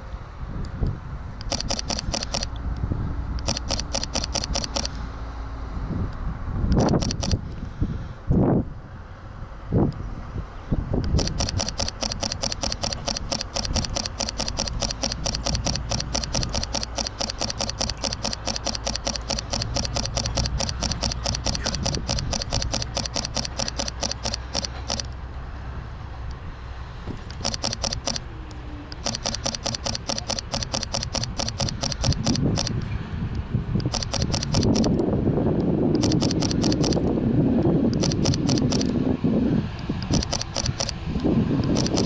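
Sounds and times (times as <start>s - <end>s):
steady low rumble: 0.0s - 42.0s
camera shutter bursts: 1.4s - 2.6s, 3.4s - 5.0s, 6.7s - 7.4s, 11.1s - 25.2s, 27.2s - 28.3s, 28.9s - 32.8s, 33.8s - 35.0s, 36.0s - 37.1s, 37.9s - 39.0s, 39.8s - 41.0s, 41.6s - 42.0s.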